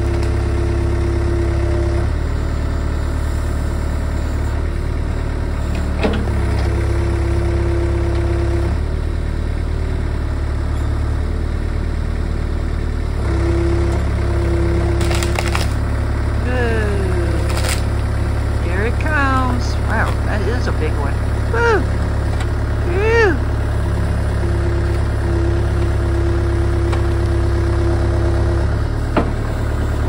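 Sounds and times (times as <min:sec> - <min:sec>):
excavator diesel engine running: 0:00.0 - 0:30.0
wood cracking: 0:14.7 - 0:16.0, 0:17.3 - 0:18.2.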